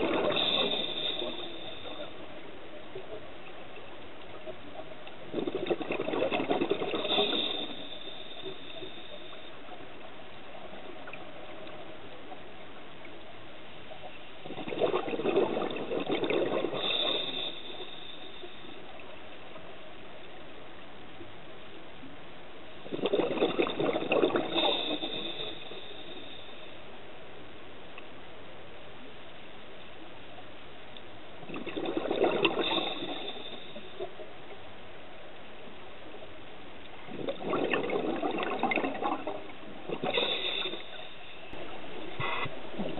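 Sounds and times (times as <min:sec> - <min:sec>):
diver's exhaled bubbles burbling: 0:00.0 - 0:02.0, 0:05.2 - 0:09.2, 0:14.4 - 0:17.9, 0:22.8 - 0:25.7, 0:31.4 - 0:34.1, 0:37.1 - 0:42.9
underwater hiss: 0:00.0 - 0:02.4, 0:05.7 - 0:10.0, 0:14.9 - 0:19.1, 0:23.6 - 0:26.9, 0:31.8 - 0:34.2, 0:37.6 - 0:42.9.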